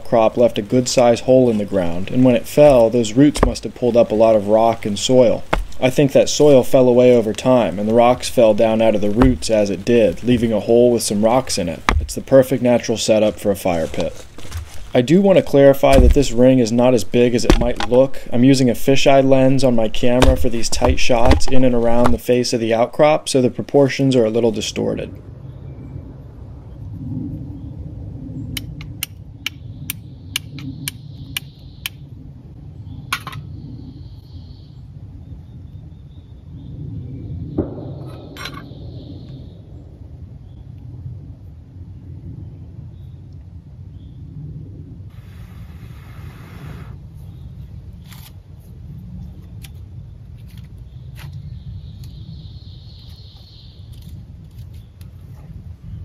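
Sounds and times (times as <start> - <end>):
wind rumble on microphone: 0.0 - 22.3, 23.6 - 56.0
fire steel striking flint: 2.6 - 3.6, 5.4 - 5.9, 11.8 - 12.2, 15.9 - 16.4
faint high-pitched hiss: 45.1 - 47.2.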